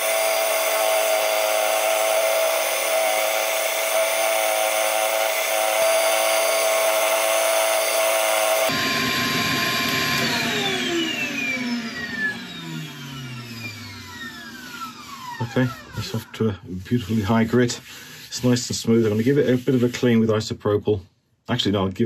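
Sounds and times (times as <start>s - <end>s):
lathe motor running: 0.0s - 16.3s
power sander whining: 0.0s - 16.6s.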